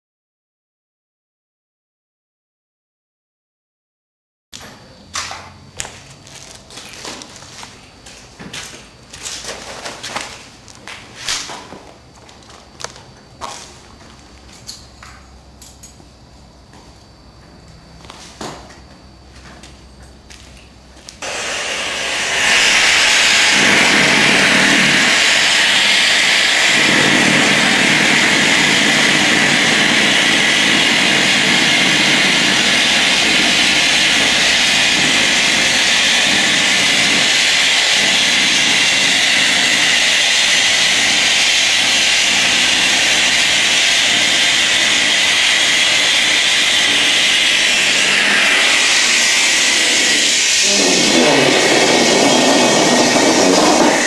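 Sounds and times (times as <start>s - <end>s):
gas hissing into a balloon: 21.2s - 54.0s.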